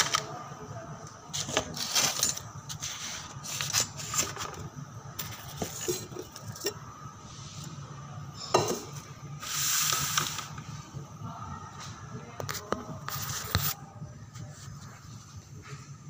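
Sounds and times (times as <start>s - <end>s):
utensils and containers clinking: 1.3s - 6.8s, 8.4s - 9.0s.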